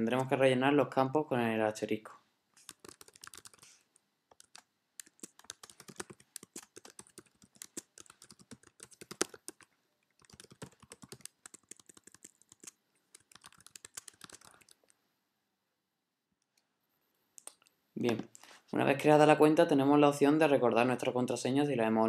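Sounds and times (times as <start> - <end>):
typing on a computer keyboard: 2.6 - 14.8.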